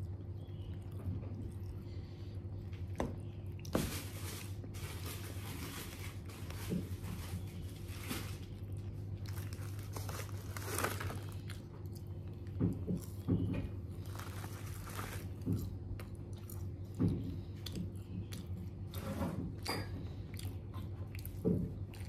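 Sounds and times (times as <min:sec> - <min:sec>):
steady low hum: 0:00.0 - 0:22.0
paper wrappers crinkling: 0:03.7 - 0:11.7, 0:13.8 - 0:15.8
person chewing crispy chicken: 0:07.4 - 0:22.0.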